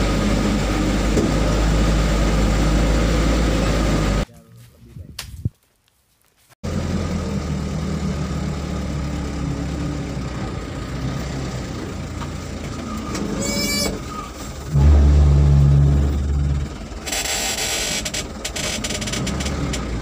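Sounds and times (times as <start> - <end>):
vehicle engine running: 0.0 - 4.3, 6.6 - 20.0
road noise on dirt track: 0.0 - 20.0
brief high squeal: 13.4 - 14.3.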